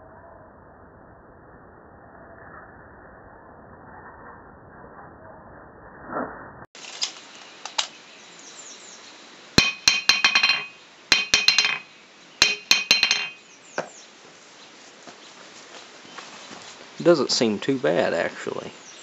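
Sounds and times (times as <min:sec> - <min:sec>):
hammer bouncing on anvil: 0:09.6 - 0:14.0.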